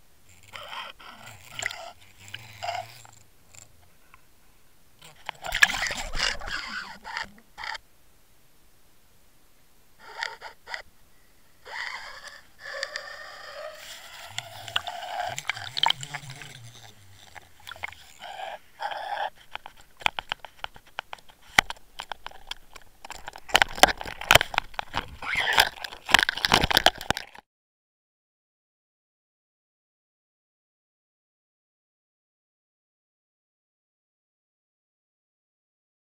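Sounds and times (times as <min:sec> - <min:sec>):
underwater scraping and knocking: 0:00.3 - 0:04.2, 0:05.0 - 0:07.8, 0:11.6 - 0:27.4.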